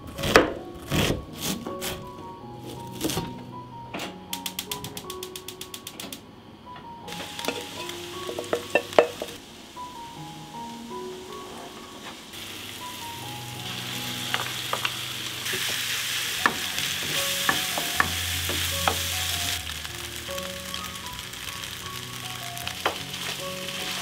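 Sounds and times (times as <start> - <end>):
rice sizzling in frying pan: 7.1 - 11.3, 12.1 - 24.0.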